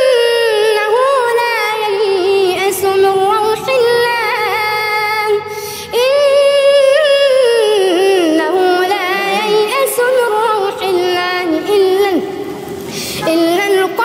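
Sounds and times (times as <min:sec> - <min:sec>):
boy reciting melodically: 0:00.0 - 0:14.0
boy taking a breath: 0:12.5 - 0:13.2.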